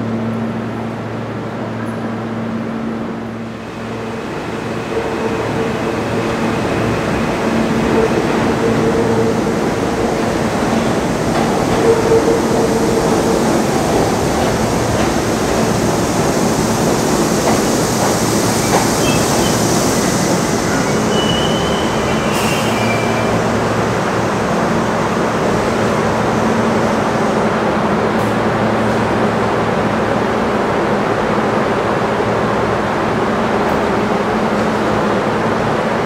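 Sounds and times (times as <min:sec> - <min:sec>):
subway train rumbling on rails: 0:00.0 - 0:36.0
high wheel squeal: 0:20.6 - 0:23.5.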